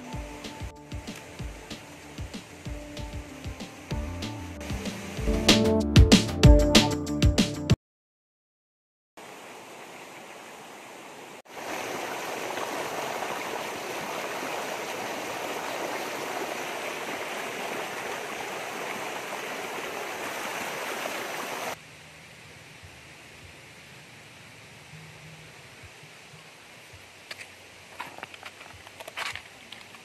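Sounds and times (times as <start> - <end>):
stream rushing over rocks: 0.0 - 4.0, 4.6 - 5.3, 9.2 - 21.8.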